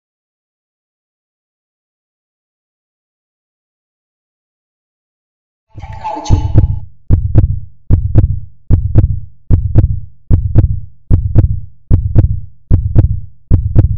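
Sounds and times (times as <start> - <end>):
heartbeat thumps: 5.8 - 13.9.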